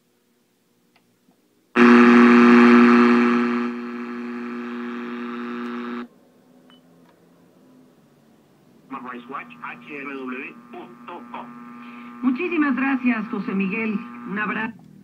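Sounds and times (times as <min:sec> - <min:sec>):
radio static hiss: 0:01.8 - 0:06.1, 0:08.9 - 0:14.8
steady buzzing hum: 0:01.8 - 0:06.1, 0:08.8 - 0:15.0.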